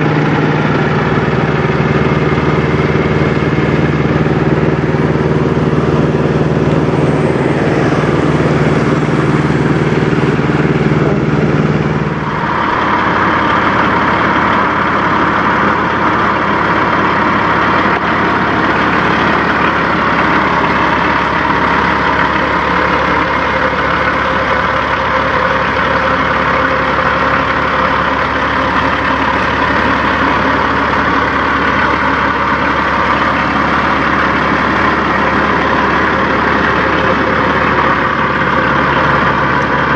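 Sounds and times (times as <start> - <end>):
truck diesel engine droning: 0.0 - 39.9
truck engine idling up close: 0.0 - 39.9.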